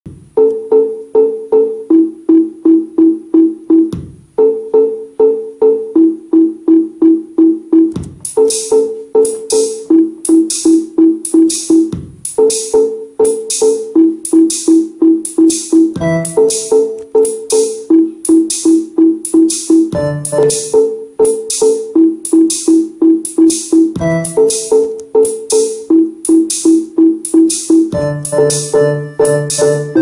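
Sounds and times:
looped synthesizer sequence: 0.2s - 30.0s
hissing hi-hat pattern: 7.9s - 30.0s.

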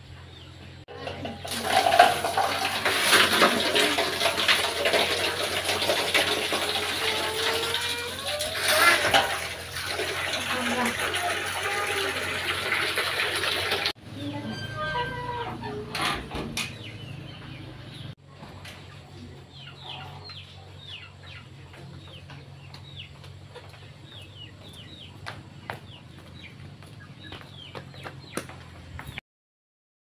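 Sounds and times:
birds cheeping: 16.6s - 29.2s.

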